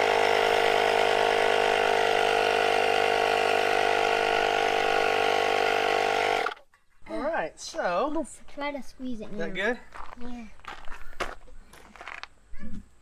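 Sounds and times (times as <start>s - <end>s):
electric tire inflator humming: 0.0s - 6.6s.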